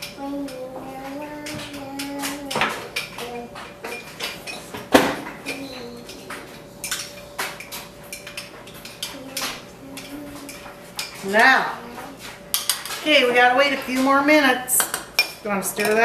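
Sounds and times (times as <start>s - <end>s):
spoons and dishes clinking: 5.4s - 11.5s.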